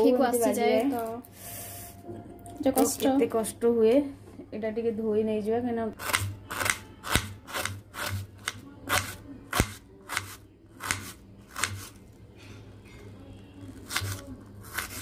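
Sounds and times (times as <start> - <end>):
knife slicing onion: 6.0 - 12.0, 13.7 - 15.0.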